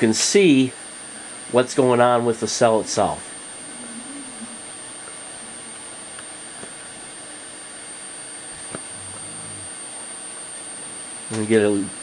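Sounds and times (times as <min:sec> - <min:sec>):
cooling fan whirring: 0:00.0 - 0:12.0
high-pitched electronic whine: 0:00.0 - 0:12.0.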